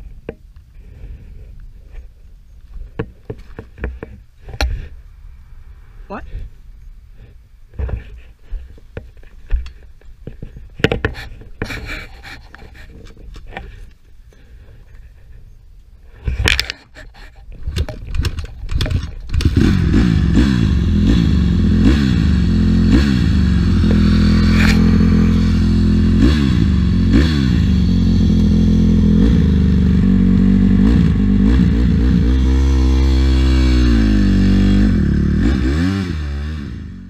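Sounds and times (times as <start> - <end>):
dirt bike engine revving: 19.3 - 37.0.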